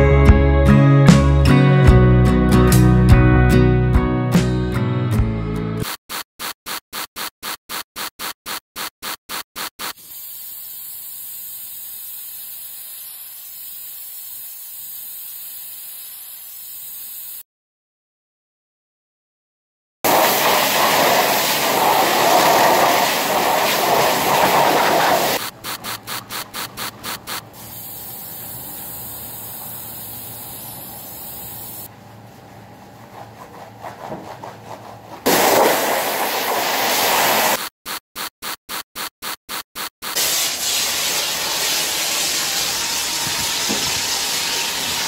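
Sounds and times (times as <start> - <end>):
pressure washer spraying: 5.8 - 17.4, 20.1 - 31.9, 35.3 - 45.0
stiff brush scrubbing rubber mat: 32.4 - 40.4.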